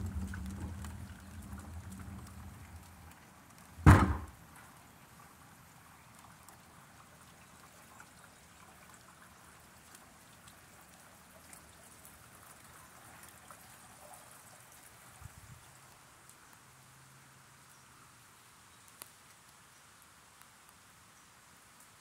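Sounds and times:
small drip ticks: 0.0 - 3.8, 4.5 - 22.0
light rain falling: 0.0 - 22.0
loud bang: 3.8 - 4.4.

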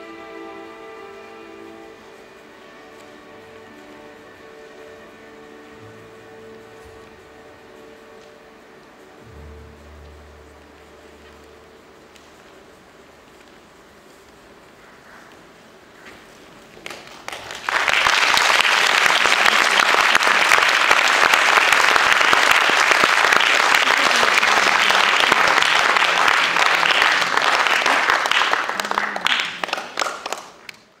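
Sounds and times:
audience applauding: 16.8 - 31.0.

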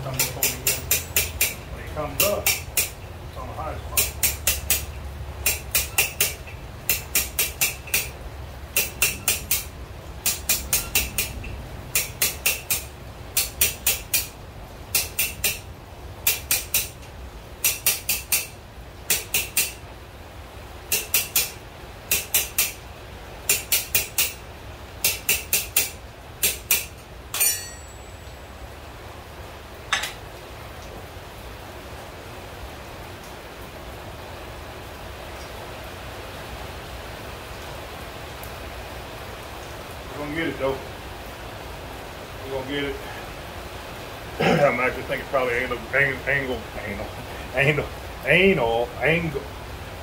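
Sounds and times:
hammer striking steel on anvil: 0.0 - 1.6, 2.2 - 3.0, 4.0 - 8.2, 8.8 - 14.3, 14.9 - 15.6, 16.2 - 17.0, 17.6 - 19.8, 20.9 - 22.8, 23.5 - 24.4, 25.0 - 28.3, 29.9 - 30.2
ringing clang: 27.3 - 28.5.

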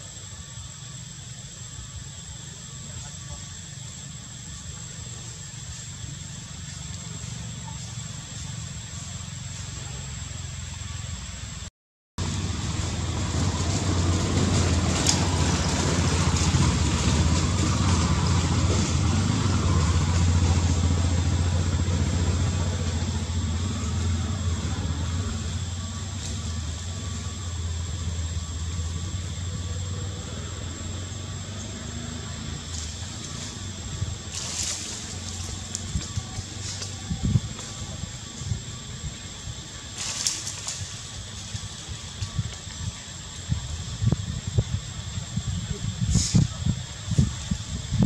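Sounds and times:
vehicle engine humming: 0.0 - 48.0
road noise: 2.1 - 48.0.

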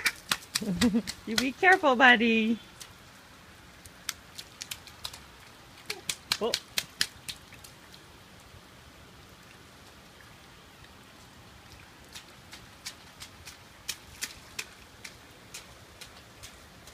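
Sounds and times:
drops tapping and splashing: 0.0 - 2.2, 3.8 - 8.0, 11.7 - 16.9
light rain falling: 0.0 - 16.9.

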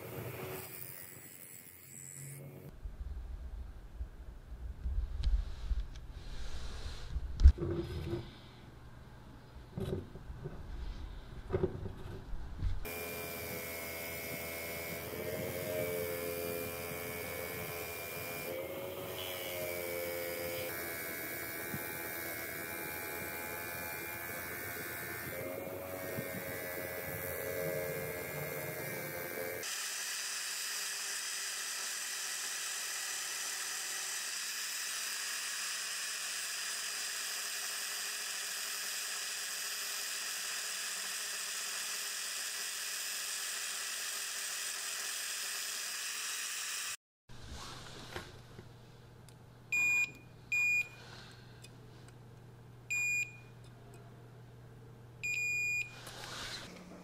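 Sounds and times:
bench grinder grinding: 0.0 - 2.7, 12.8 - 47.0
drill press whirring: 27.9 - 47.0.

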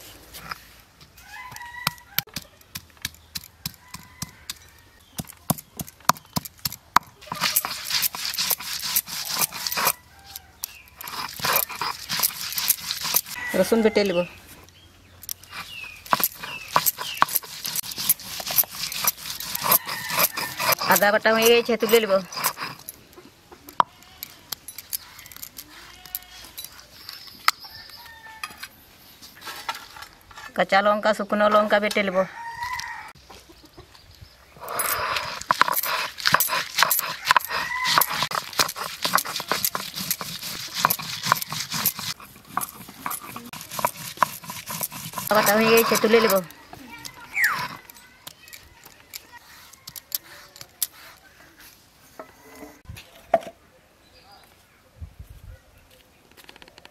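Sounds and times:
stone roller scraping on slab: 3.6 - 13.8, 15.3 - 23.0, 34.6 - 51.2
stone roller knocking on ginger: 15.6 - 22.7, 35.2 - 46.5
chickens clucking: 33.2 - 34.0
steel bowls and plates clinking: 34.6 - 50.9.

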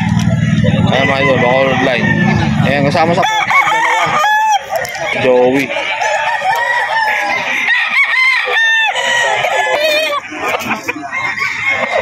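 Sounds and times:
roosters clucking: 0.0 - 12.0
roosters crowing: 0.0 - 12.0.

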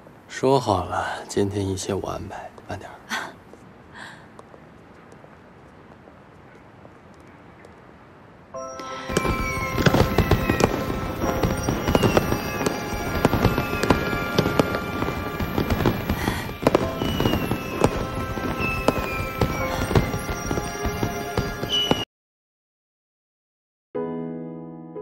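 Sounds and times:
background music with held chords: 8.6 - 15.9
falling firework whistles: 8.8 - 22.1
fireworks bangs and crackles: 9.0 - 22.0.

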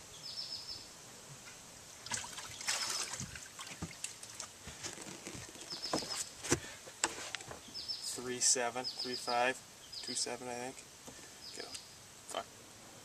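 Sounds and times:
water splashing and dripping: 2.0 - 6.2.

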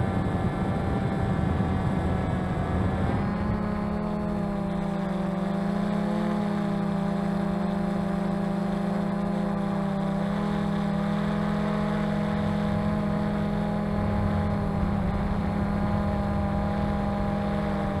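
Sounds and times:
drone motors humming: 0.0 - 18.0
low uneven rumble: 12.4 - 18.0.

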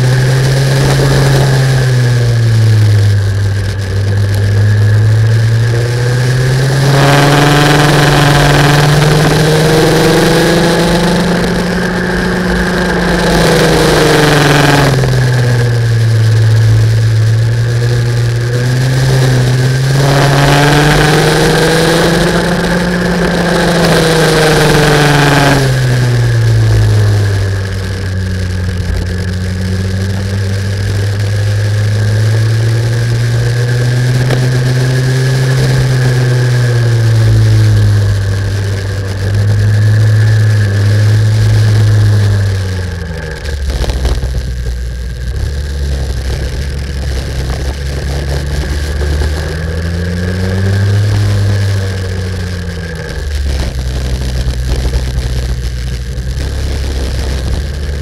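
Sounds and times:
kart engine revving: 0.0 - 58.0
wind rush: 33.2 - 58.0.

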